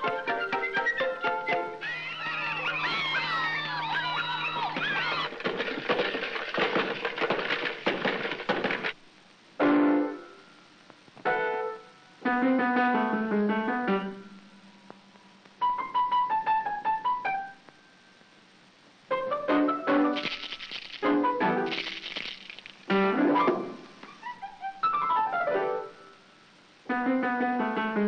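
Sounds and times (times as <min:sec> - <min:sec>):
cartoon ensemble music: 0:00.0 - 0:05.2.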